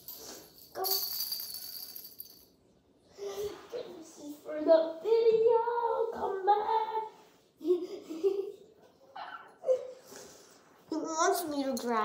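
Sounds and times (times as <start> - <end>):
high voice singing wordless tune: 4.5 - 7.2.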